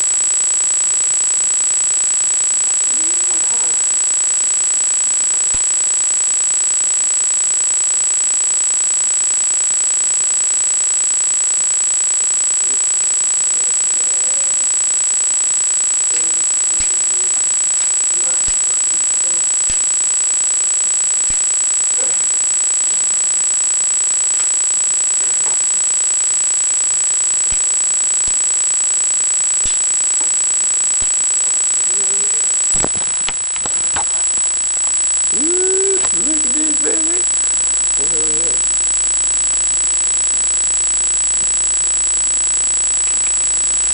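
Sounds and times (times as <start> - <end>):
high-pitched whine: 0.0 - 43.9
constant hiss: 13.9 - 39.7.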